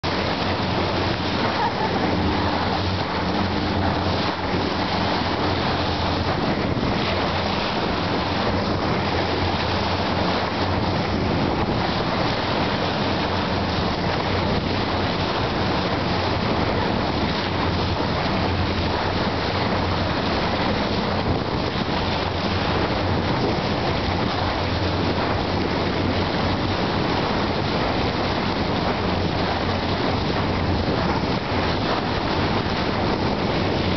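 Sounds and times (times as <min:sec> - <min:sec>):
boat engine droning: 0:00.0 - 0:33.9
water rushing along boat bow: 0:00.0 - 0:33.9
wind noise on microphone: 0:00.0 - 0:33.9.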